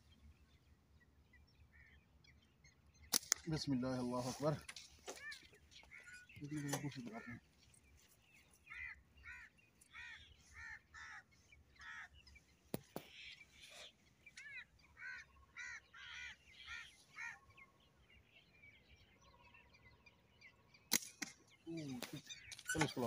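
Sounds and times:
sharp clicks: 3.1s - 3.6s, 20.9s - 21.4s
crow cawing: 5.1s - 7.4s, 8.6s - 12.3s, 14.4s - 17.6s.

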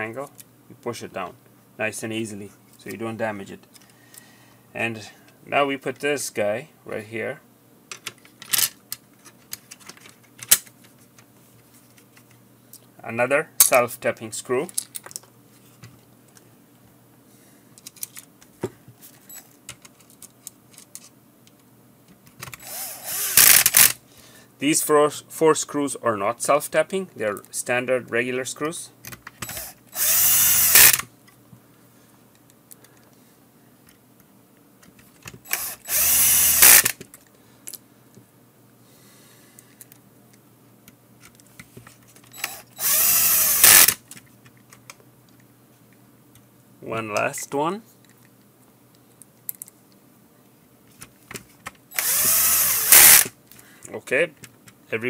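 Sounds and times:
small clicks of parts handled: 7.9s - 12.9s, 14.6s - 16.5s, 17.8s - 18.5s, 19.1s - 22.6s, 32.3s - 33.2s, 36.6s - 38.2s, 39.6s - 42.6s, 43.8s - 46.5s, 48.0s - 50.0s
cordless drill whirring: 22.6s - 24.0s, 29.4s - 31.0s, 35.5s - 37.0s, 42.4s - 44.0s, 51.9s - 53.3s
electric screwdriver motor whine: 22.6s - 24.0s, 29.4s - 31.0s, 35.5s - 37.0s, 42.4s - 44.0s, 52.0s - 53.3s.

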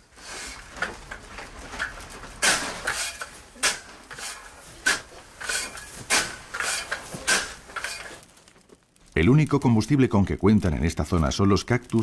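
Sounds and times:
shovel scraping wet salt: 2.4s - 8.2s.

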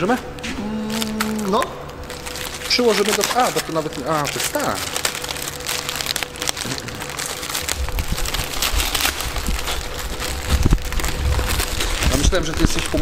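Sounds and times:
plastic film crinkling: 0.0s - 13.0s
low rumble: 3.8s - 13.0s.

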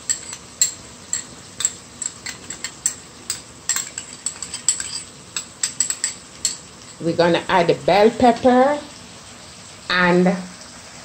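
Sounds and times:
spoon scraping cooking pot: 0.0s - 7.0s
low steady sizzle: 0.0s - 11.0s.

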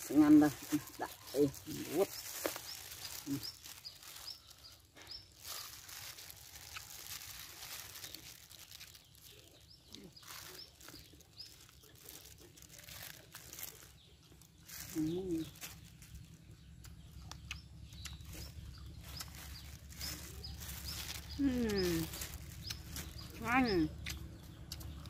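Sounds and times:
birds chirping: 0.0s - 25.0s
plastic gloves crinkling: 0.0s - 25.0s
person chewing: 6.3s - 13.3s, 24.0s - 25.0s.

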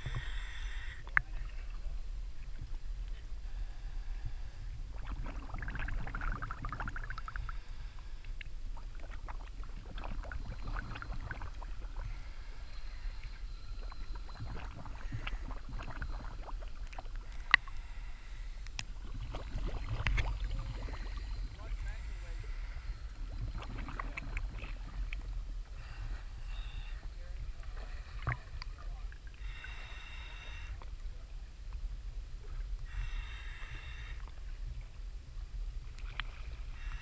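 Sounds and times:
steady low rumble: 0.0s - 37.0s
water sloshing and splashing: 4.8s - 7.5s, 8.3s - 29.4s.

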